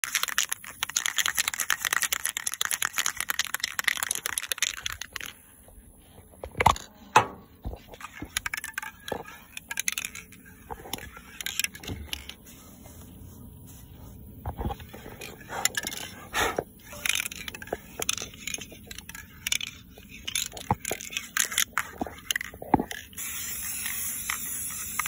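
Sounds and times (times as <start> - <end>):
spray paint can hissing: 0.0 - 5.6, 15.2 - 25.0
handling clicks and knocks: 0.0 - 12.4, 14.4 - 23.2.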